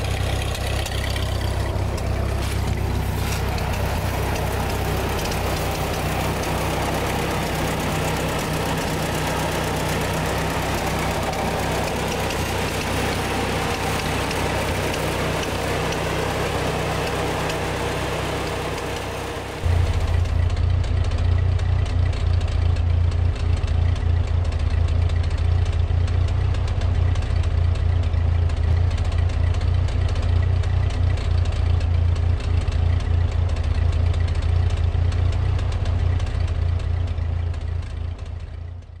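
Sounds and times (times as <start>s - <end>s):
tractor engine idling: 0.0s - 39.0s.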